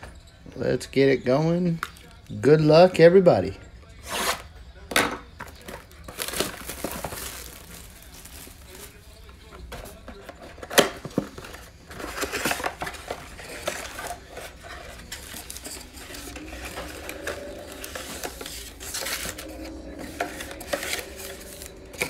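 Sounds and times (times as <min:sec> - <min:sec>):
cardboard box crinkling and rustling: 0:05.6 - 0:22.0.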